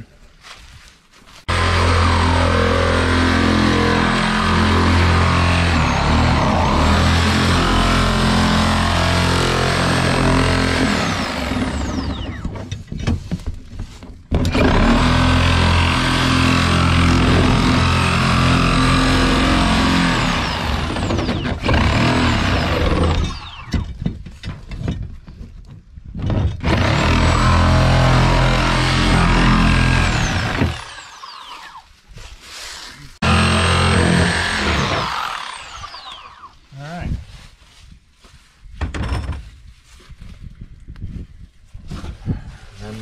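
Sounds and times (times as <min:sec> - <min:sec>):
reciprocating saw cutting plastic: 0:01.5 - 0:12.6, 0:14.3 - 0:23.8, 0:26.6 - 0:31.9, 0:32.6 - 0:36.6.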